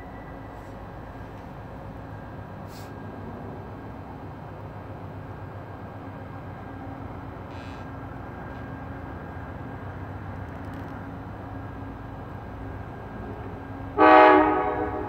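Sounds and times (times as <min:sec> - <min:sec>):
distant diesel train rumbling: 0:00.0 - 0:15.0
brief hiss: 0:02.7 - 0:03.0, 0:07.5 - 0:07.9.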